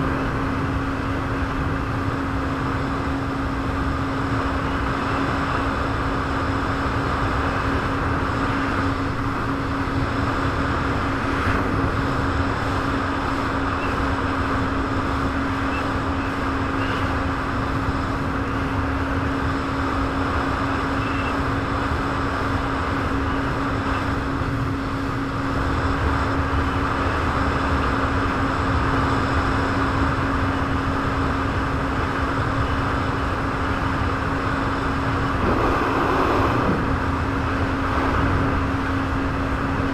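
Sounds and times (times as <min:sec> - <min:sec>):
jet ski engine running: 0:00.0 - 0:39.9
rushing water noise: 0:34.8 - 0:39.9.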